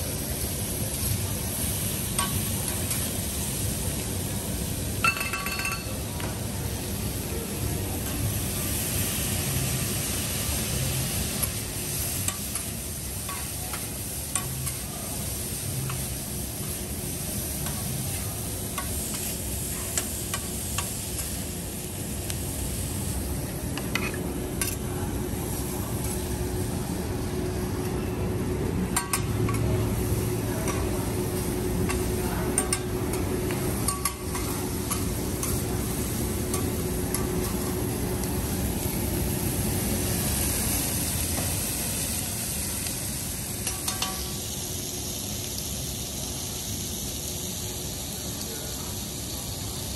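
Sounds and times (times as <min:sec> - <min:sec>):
food sizzling on a griddle: 0:00.0 - 0:49.9
steady hum: 0:21.5 - 0:44.4
metal spatulas scraping and tapping: 0:23.8 - 0:24.8.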